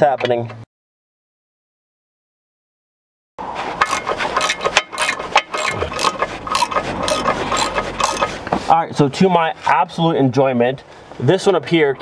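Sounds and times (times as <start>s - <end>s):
ratchet wrench clicking: 3.8s - 8.4s.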